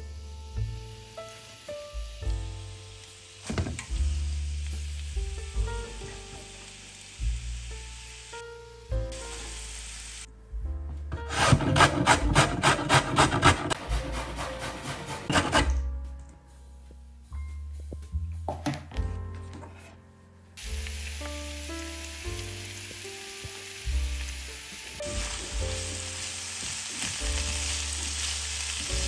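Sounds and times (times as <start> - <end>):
background music: 0.0 - 29.0
oil sizzling in frying pan: 0.1 - 10.3, 20.6 - 29.0
carrot rasping on box grater: 11.3 - 15.8.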